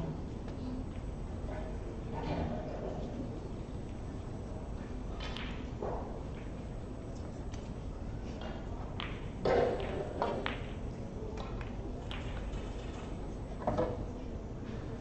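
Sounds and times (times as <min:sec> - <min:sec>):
snooker balls clicking: 0:05.2 - 0:06.7, 0:08.4 - 0:14.0.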